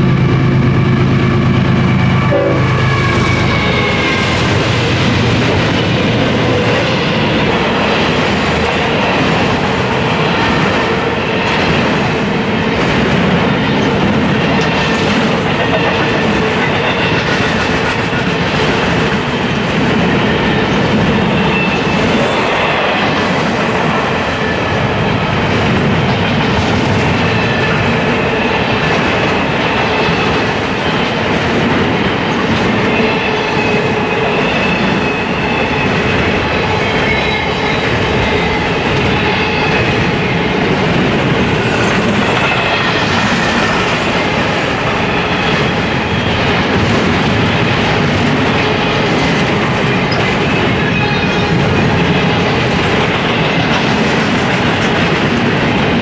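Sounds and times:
train wheels rolling on rails: 0.0s - 56.0s
high wheel squeals: 2.0s - 5.0s.

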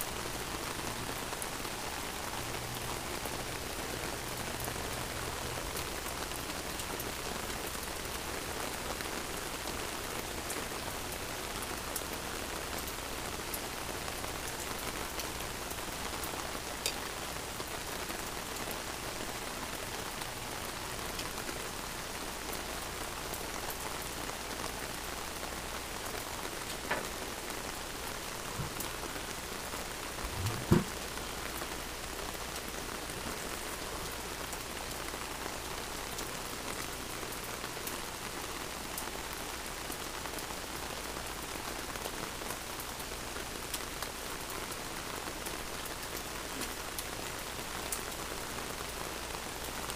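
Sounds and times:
steady rain falling: 0.0s - 49.9s
dull thump: 28.6s - 28.8s, 30.3s - 31.0s.

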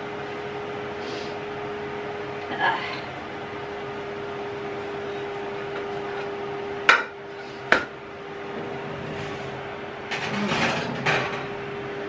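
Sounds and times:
steady hum: 0.0s - 12.0s
metal baking tray clanking: 10.1s - 11.6s.

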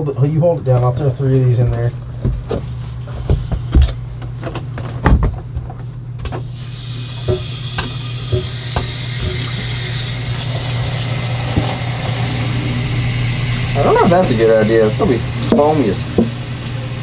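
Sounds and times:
steady low hum: 0.0s - 17.0s
water rushing into toilet: 6.4s - 17.0s
garden hose knocking and clattering: 7.2s - 9.6s.

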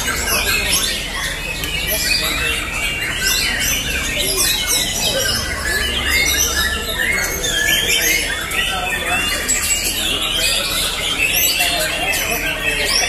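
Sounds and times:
birds singing and chirping: 0.0s - 13.0s.

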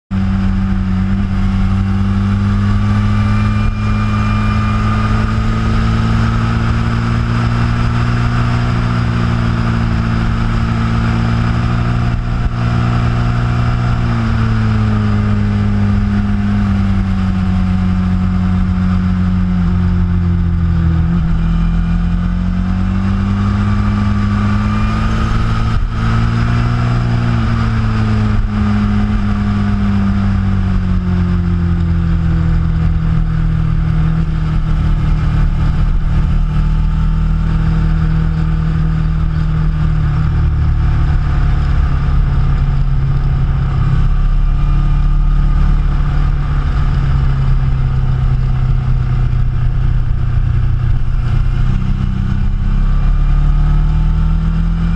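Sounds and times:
motorcycle engine running: 0.0s - 54.9s
wind and road noise: 0.1s - 54.9s.

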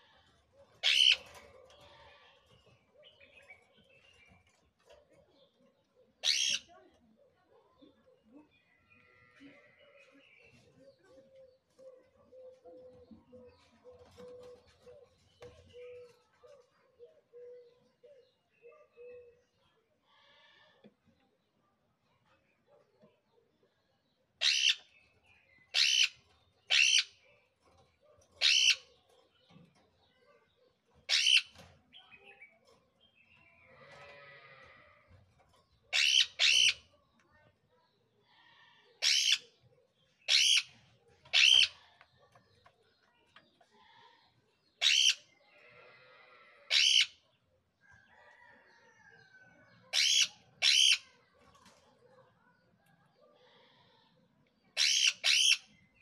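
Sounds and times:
parrots screeching: 0.8s - 1.3s, 6.2s - 6.6s, 24.4s - 24.8s, 25.8s - 26.1s, 26.7s - 27.1s, 28.4s - 28.8s, 31.1s - 31.5s, 35.9s - 36.8s, 39.0s - 39.4s, 40.3s - 40.7s, 41.3s - 41.8s, 44.8s - 45.2s, 46.7s - 47.1s, 49.9s - 51.0s, 54.8s - 55.6s
parakeets squawking: 0.8s - 1.4s, 6.2s - 6.6s, 24.4s - 24.8s, 25.8s - 26.1s, 26.7s - 27.1s, 28.4s - 28.8s, 31.1s - 31.5s, 35.9s - 36.8s, 39.0s - 39.4s, 40.3s - 40.7s, 41.3s - 41.8s, 44.8s - 45.2s, 46.7s - 47.1s, 50.0s - 51.0s, 54.8s - 55.6s
parrot chatter: 0.8s - 2.1s, 28.4s - 28.9s, 35.9s - 36.8s, 40.3s - 41.8s, 44.8s - 45.2s, 46.7s - 47.1s, 49.9s - 51.0s.

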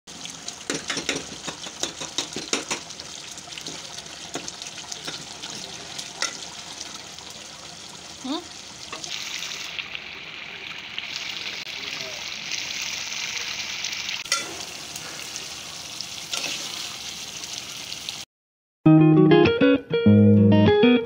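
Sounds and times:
food sizzling and bubbling in pot: 0.1s - 18.3s
spoon clinking and scraping pot: 14.3s - 14.7s.

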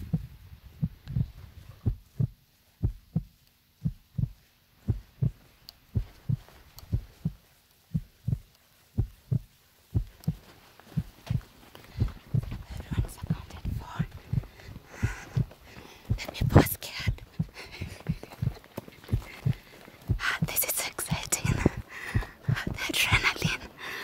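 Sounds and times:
footsteps on dirt trail: 4.3s - 16.4s, 17.0s - 20.4s, 21.4s - 22.7s.

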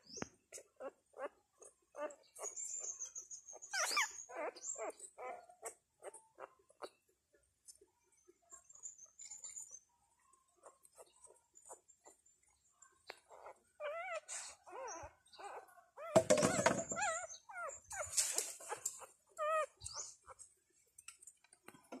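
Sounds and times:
puppies crying and squeaking: 0.0s - 7.1s, 8.4s - 20.6s
faint ticks and scrapes: 4.5s - 14.7s, 16.4s - 22.0s.

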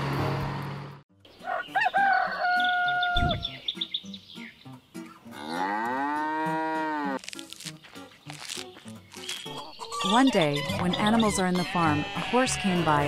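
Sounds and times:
bird chirps: 1.3s - 5.2s, 7.9s - 11.6s
cow mooing: 5.3s - 7.2s.

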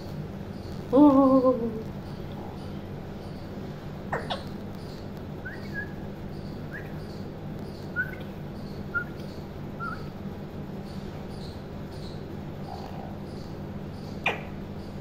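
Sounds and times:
parakeet chirping: 4.1s - 10.1s.

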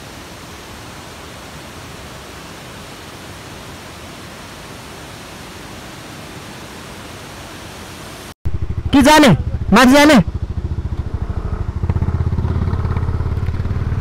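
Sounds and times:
river rushing: 0.0s - 8.4s.

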